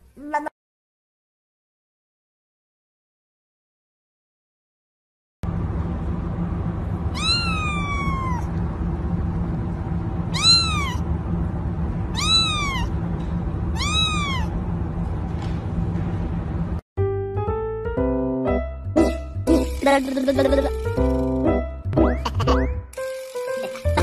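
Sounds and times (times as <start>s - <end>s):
steady low hum: 5.4s - 16.8s
kitten mewing: 7.1s - 8.5s, 10.3s - 11.0s, 12.1s - 12.9s, 13.8s - 14.5s.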